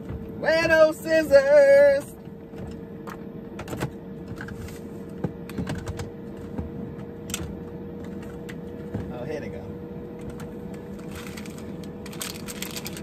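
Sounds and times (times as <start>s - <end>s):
steady hum: 0.0s - 13.0s
items clicking and rustling: 10.2s - 13.0s
hands rummaging through bags: 10.8s - 13.0s.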